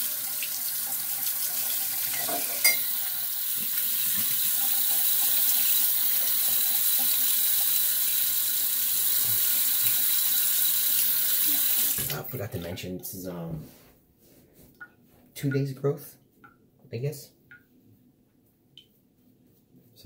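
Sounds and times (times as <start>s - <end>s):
tap water running into basin: 0.0s - 12.4s.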